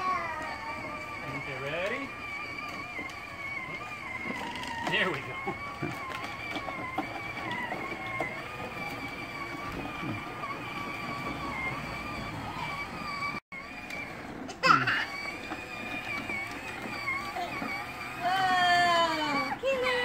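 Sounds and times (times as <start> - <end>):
toy ride-on motor whining: 0.0 - 20.0.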